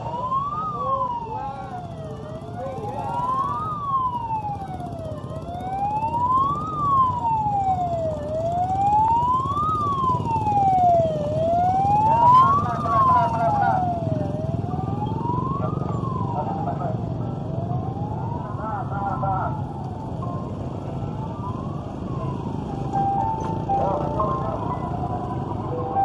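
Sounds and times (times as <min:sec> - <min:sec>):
electronic siren wailing: 0:00.0 - 0:26.0
motorbike engines rumbling: 0:00.0 - 0:26.0.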